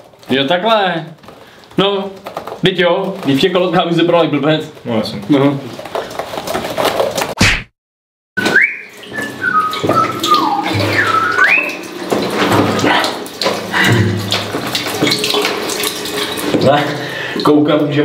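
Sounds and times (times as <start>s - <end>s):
urine splashing into urinals: 0.0s - 7.4s, 8.4s - 18.0s
person whistling a tune: 8.4s - 11.8s.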